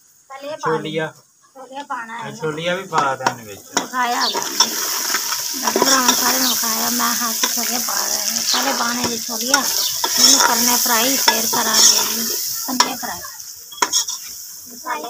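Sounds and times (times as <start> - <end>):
masala sizzling in pot: 0.0 - 15.0
ladle clinking and scraping pot: 3.7 - 6.6, 7.4 - 13.0, 13.7 - 14.3.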